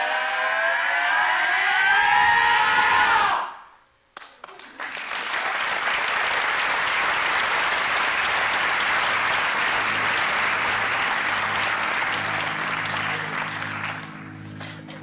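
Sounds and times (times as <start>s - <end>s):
audience applauding: 4.2s - 14.9s
low music notes: 8.6s - 15.0s.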